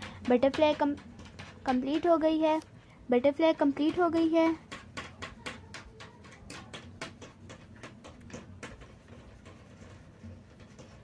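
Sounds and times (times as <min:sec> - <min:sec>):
pencil scratching on paper: 0:03.8 - 0:11.0.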